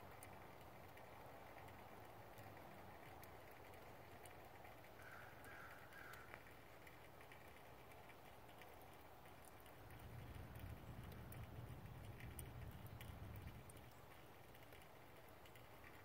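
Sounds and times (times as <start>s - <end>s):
faint low rumble: 8.5s - 15.3s.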